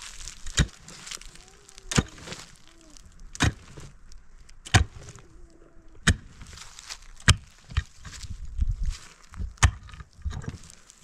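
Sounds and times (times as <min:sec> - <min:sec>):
pickaxe striking earth: 0:00.3 - 0:01.0, 0:01.9 - 0:02.4, 0:03.3 - 0:03.9, 0:04.6 - 0:05.1, 0:06.0 - 0:06.5, 0:07.2 - 0:08.3, 0:09.6 - 0:10.7.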